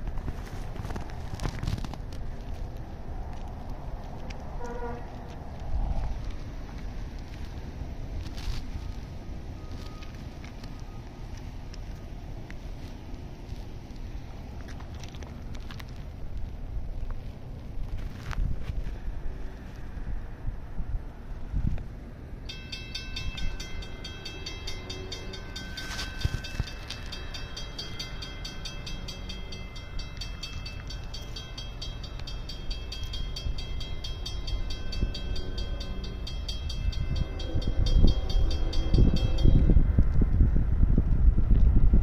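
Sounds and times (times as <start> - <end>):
diesel locomotive rumbling: 0.0 - 42.0
train horn: 4.6 - 5.1, 34.9 - 39.8
crossing signal bell ringing: 22.4 - 40.0.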